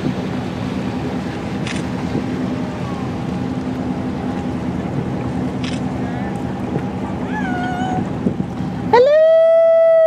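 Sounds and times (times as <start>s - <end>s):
boat engine hum: 0.0s - 10.0s
water noise: 0.0s - 10.0s
wind: 0.0s - 10.0s.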